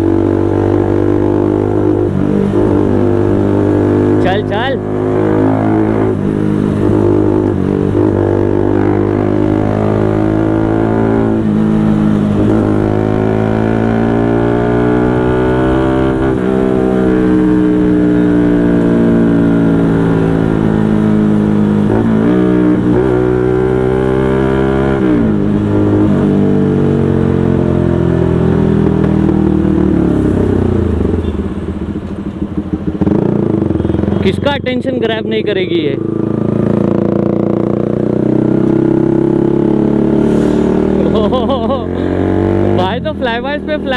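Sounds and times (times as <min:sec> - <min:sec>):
motorcycle engine revving through gears: 0:00.0 - 0:43.9.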